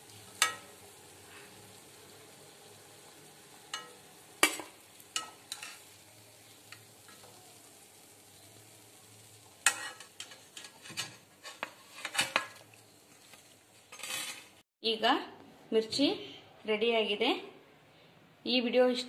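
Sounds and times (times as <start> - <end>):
chillies sizzling in oil: 0.0 - 14.6
spoon scraping pan: 3.6 - 7.4, 9.6 - 14.5
spoon clinking against pan: 3.7 - 5.8.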